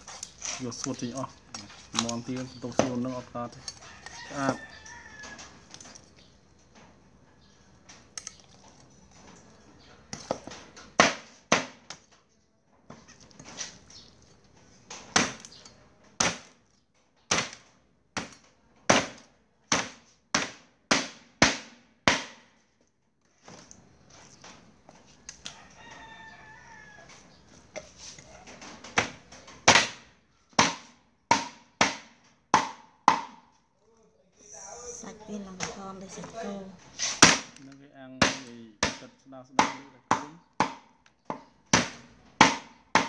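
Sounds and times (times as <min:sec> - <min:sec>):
cleaver chopping meat and bone: 0:00.0 - 0:04.6, 0:10.2 - 0:12.0, 0:14.9 - 0:15.6, 0:16.2 - 0:16.6, 0:17.3 - 0:17.6, 0:18.2 - 0:22.5, 0:28.9 - 0:30.0, 0:30.6 - 0:33.5, 0:37.2 - 0:37.6, 0:38.2 - 0:43.0.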